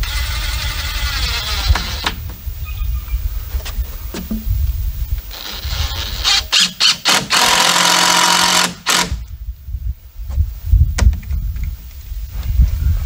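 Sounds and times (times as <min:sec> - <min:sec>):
cordless drill whirring: 0:00.0 - 0:02.2, 0:05.3 - 0:09.2.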